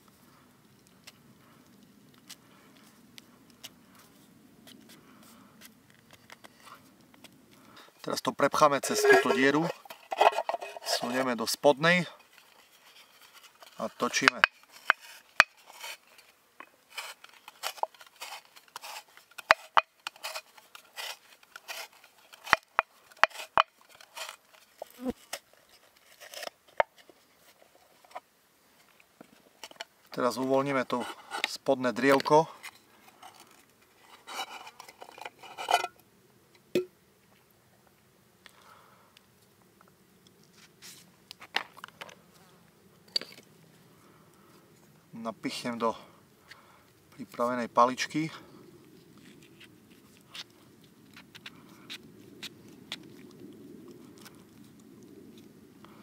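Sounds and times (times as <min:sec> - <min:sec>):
potato being scraped by spiral cutter: 0:08.6 - 0:11.3, 0:13.2 - 0:26.6.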